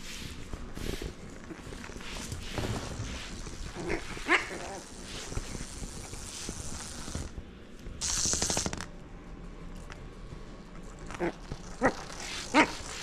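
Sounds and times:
paws and ball on wooden floor: 0.2s - 7.3s.

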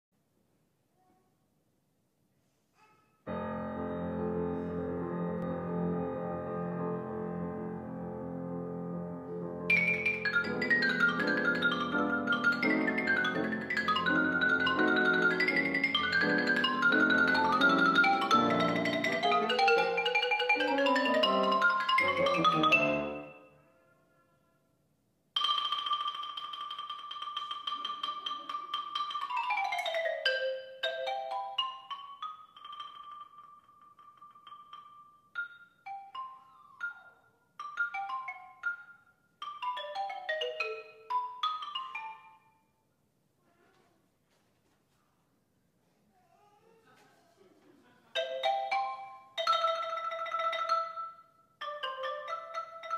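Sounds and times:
piano accompaniment: 3.3s - 23.6s
xylophone playing quick notes: 9.7s - 23.5s.

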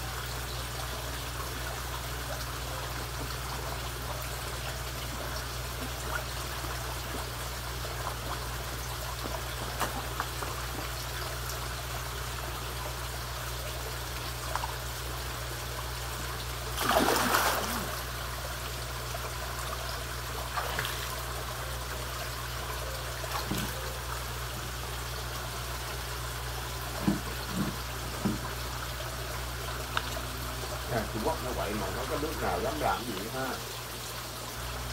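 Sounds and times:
water trickling into pond: 0.0s - 34.9s
fish splashing: 16.6s - 18.3s.

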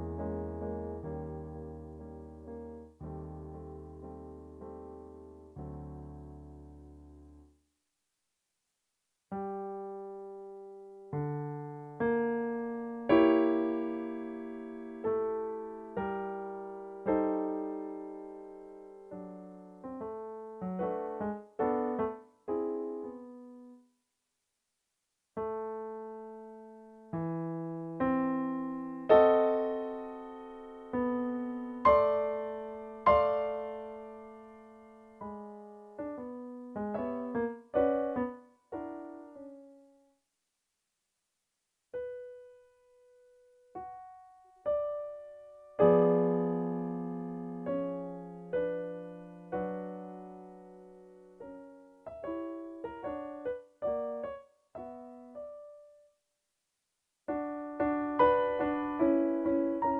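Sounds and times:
solo piano music: 0.0s - 7.6s, 9.3s - 23.9s, 25.4s - 40.2s, 41.9s - 56.2s, 57.3s - 59.9s.

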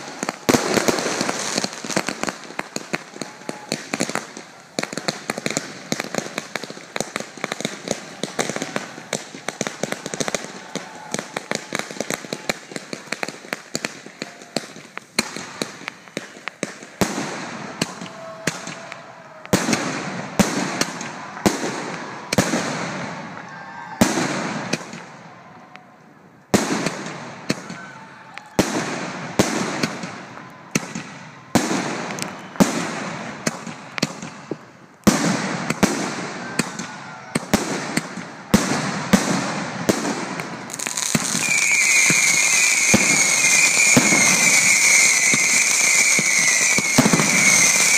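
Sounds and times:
fireworks bangs: 0.0s - 47.9s
firework hissing and whistling: 40.7s - 47.9s.

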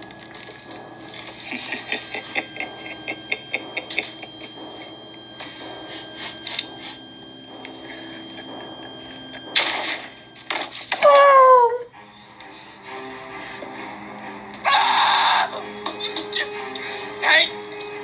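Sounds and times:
thin steady tone: 0.0s - 11.0s
person screaming: 14.6s - 15.6s.

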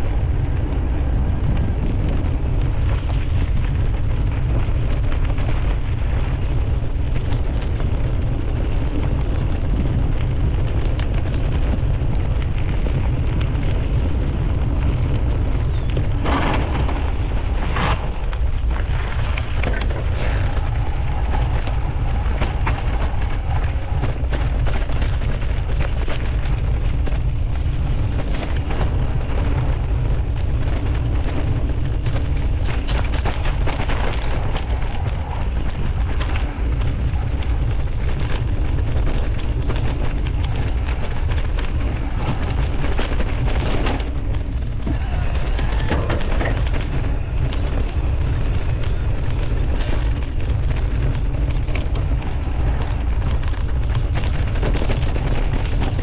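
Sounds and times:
bike tyres clattering on rough ground: 0.0s - 56.0s
wind buffeting microphone: 0.0s - 56.0s.

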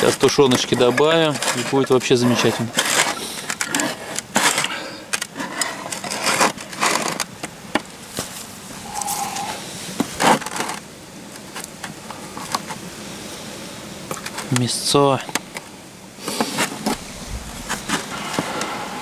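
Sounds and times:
metal scraping on tin: 0.0s - 4.7s.

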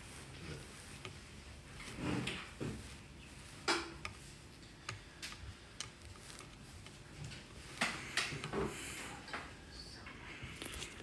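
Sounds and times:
soft clicks and ticks: 4.0s - 8.5s.

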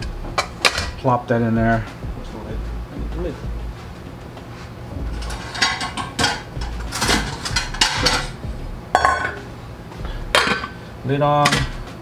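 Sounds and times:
cookware and utensils clattering: 0.3s - 1.1s, 5.1s - 9.5s, 10.3s - 12.0s.

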